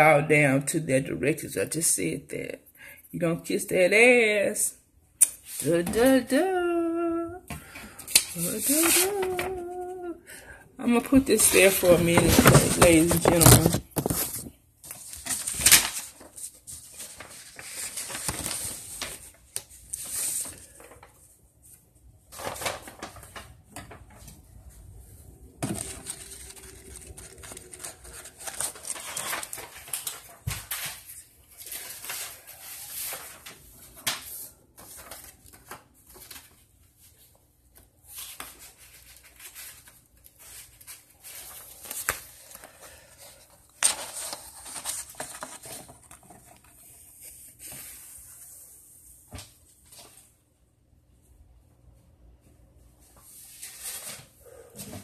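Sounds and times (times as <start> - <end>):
objects being handled: 11.4 - 15.6.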